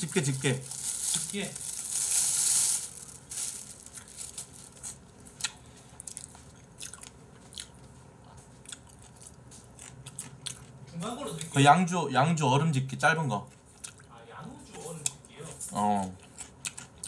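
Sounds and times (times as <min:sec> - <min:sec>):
crunchy chewing: 0:03.7 - 0:11.5, 0:13.4 - 0:14.1, 0:16.0 - 0:17.0.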